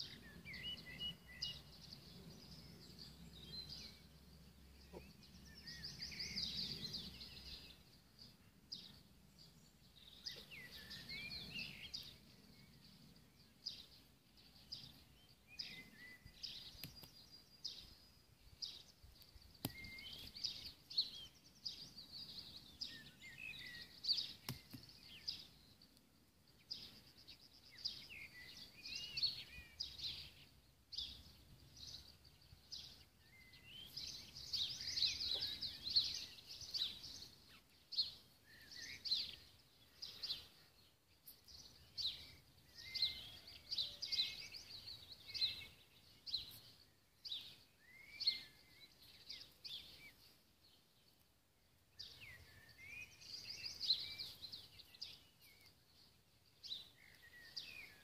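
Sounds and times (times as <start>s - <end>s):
songbirds chirping and warbling: 0.0s - 58.0s.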